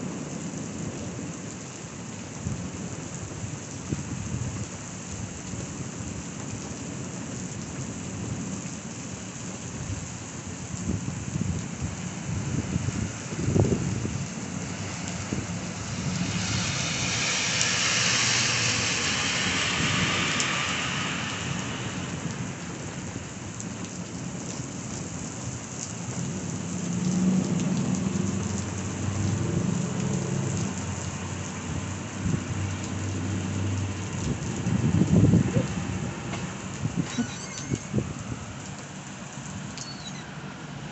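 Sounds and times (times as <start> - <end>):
heavy rain on street: 0.0 - 40.9
low thunder rumbling: 9.9 - 17.6.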